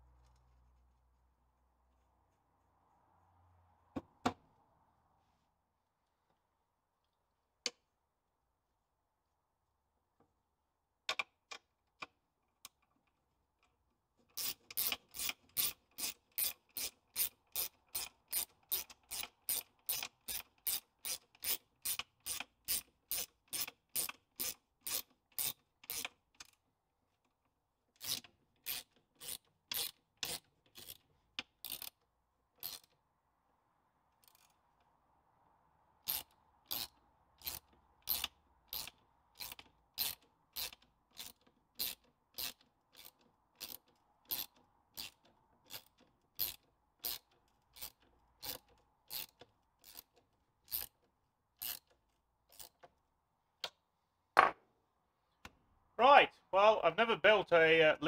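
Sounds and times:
socket ratchet clicking: 14.4s - 26.5s, 28.0s - 32.0s, 36.0s - 51.0s, 51.6s - 52.9s.

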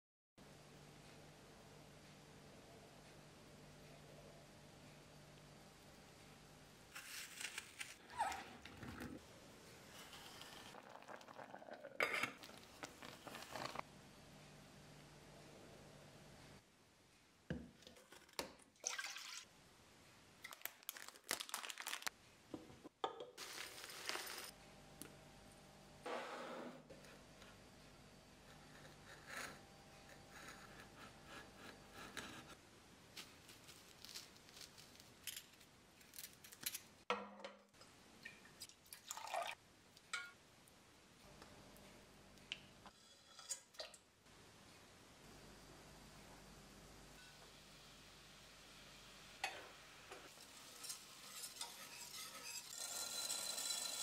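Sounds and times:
small drip and splash: 38.2s - 40.1s.

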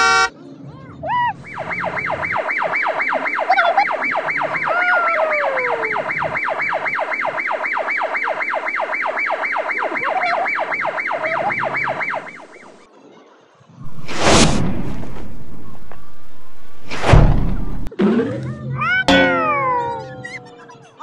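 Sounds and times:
electronic siren yelping: 1.2s - 12.8s, 19.2s - 20.6s.

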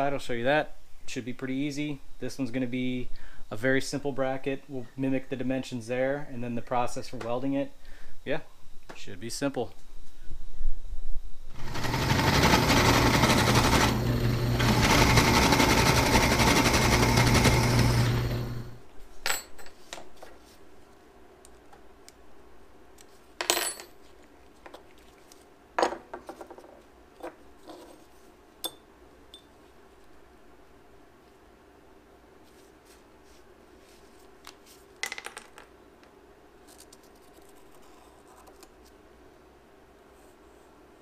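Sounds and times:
machine humming loudly: 11.6s - 18.8s
metal parts clinking on bench: 19.2s - 20.0s, 23.4s - 24.0s.

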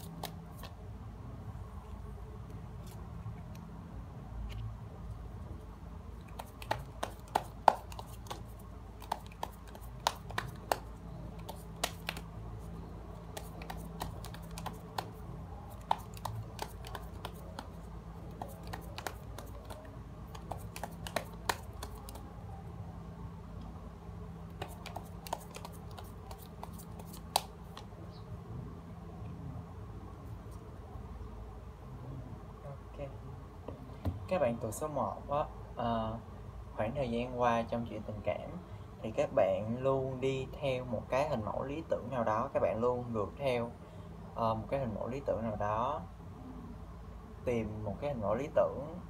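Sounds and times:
low steady hum: 0.0s - 49.0s.

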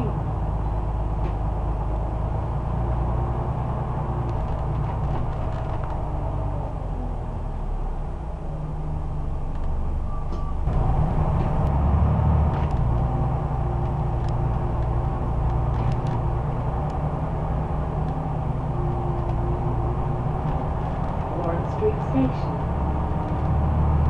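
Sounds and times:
bus diesel engine drone: 0.0s - 24.0s
faint clicks and rattles: 13.8s - 17.0s, 20.4s - 23.6s.

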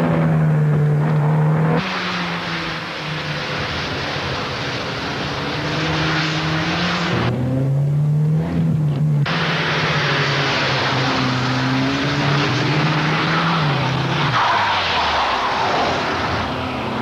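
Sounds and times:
car engine running hard: 0.0s - 17.0s
tyres squealing and skidding: 9.3s - 17.0s.

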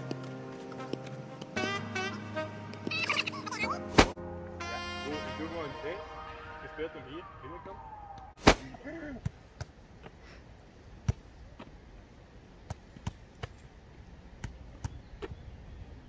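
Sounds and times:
foot kicking football thuds: 4.0s - 4.2s.

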